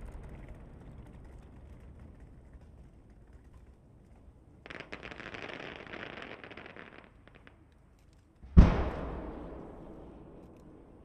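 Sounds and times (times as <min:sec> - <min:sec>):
fireworks crackling: 0:04.6 - 0:07.8
fireworks pops: 0:04.6 - 0:07.8, 0:08.4 - 0:11.0
deep firework boom: 0:08.5 - 0:11.0.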